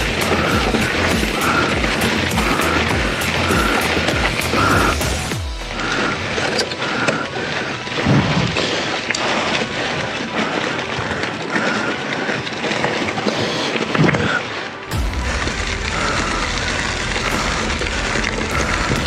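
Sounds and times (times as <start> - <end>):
bike rattles and knocks: 0.0 - 19.0
bike tyres on dirt trail: 0.0 - 19.0
low thumps: 14.9 - 19.0.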